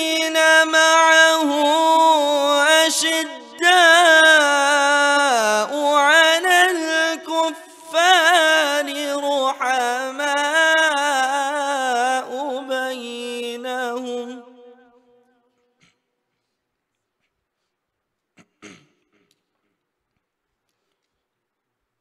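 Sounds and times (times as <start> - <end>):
person chanting melodic recitation: 0.0 - 14.6.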